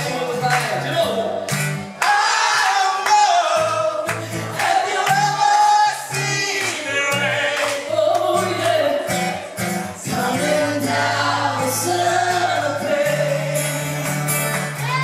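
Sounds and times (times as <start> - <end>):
strummed acoustic guitar: 0.0 - 15.0
woman singing into a microphone: 7.9 - 9.4.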